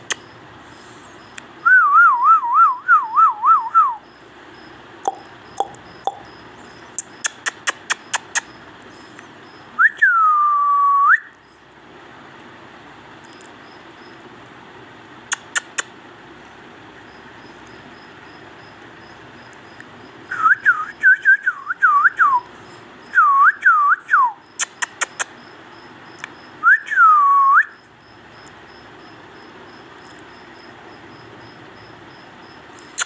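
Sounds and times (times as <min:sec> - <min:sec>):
swooping whistling: 0:01.6 - 0:04.1, 0:09.8 - 0:11.4, 0:20.3 - 0:22.5, 0:23.1 - 0:24.9, 0:26.6 - 0:27.9
sharp clicks: 0:07.0 - 0:09.3, 0:15.3 - 0:15.9, 0:24.6 - 0:25.4.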